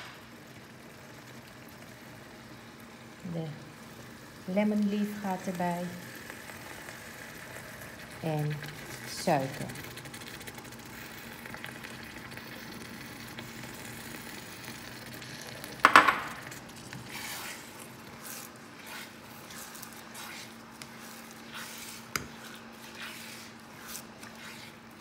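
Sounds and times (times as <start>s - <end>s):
pan sizzling: 0.0s - 25.0s
spatula scraping frying pan: 16.4s - 25.0s.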